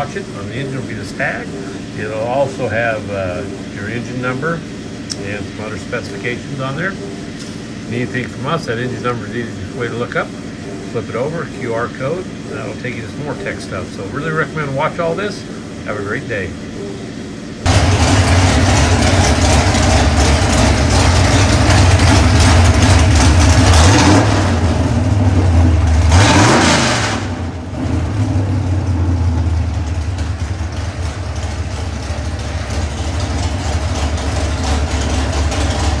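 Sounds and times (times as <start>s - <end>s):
engine running and revving: 17.7s - 31.2s.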